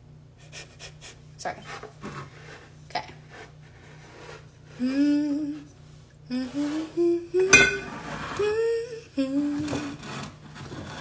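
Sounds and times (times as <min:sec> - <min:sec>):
woman humming: 0:04.7 - 0:10.0.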